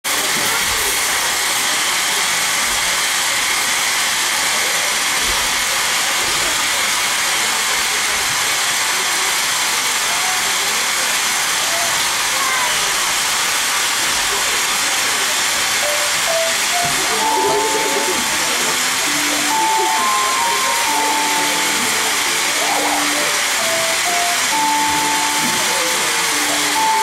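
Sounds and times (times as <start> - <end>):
loud steady hiss: 5.8 - 27.0.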